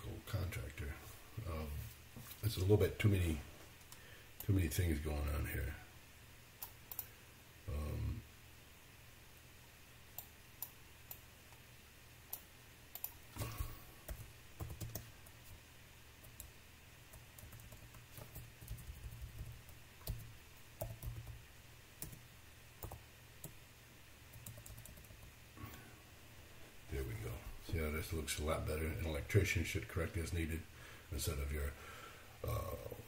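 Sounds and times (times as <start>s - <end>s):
keyboard typing: 6.6s - 7.1s, 12.3s - 13.2s, 14.0s - 15.4s, 17.1s - 21.4s, 22.0s - 22.2s, 22.8s - 23.6s, 24.3s - 25.3s.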